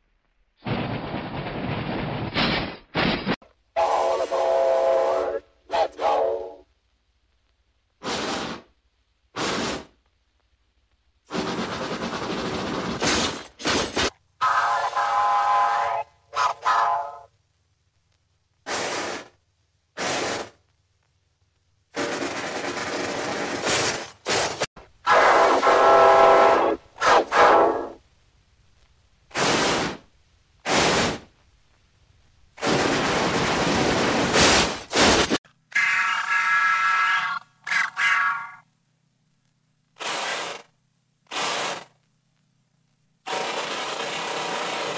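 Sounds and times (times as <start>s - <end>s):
steam whistle blast: 3.8s - 6.6s, 14.4s - 17.3s, 25.1s - 28.0s
steam hissing puffs: 8.0s - 8.7s, 9.4s - 9.9s.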